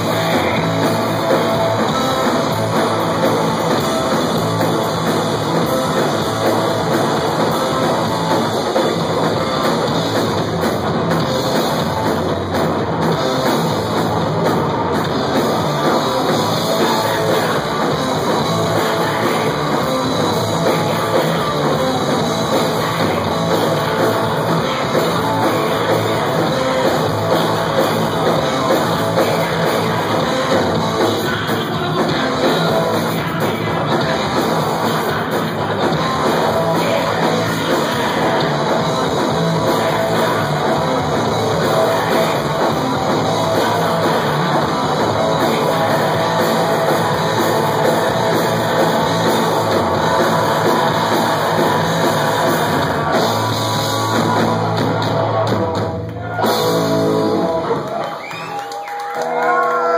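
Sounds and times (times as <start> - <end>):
punk band playing live: 0.0 - 59.9
shouted vocals: 56.1 - 56.8, 57.5 - 59.9.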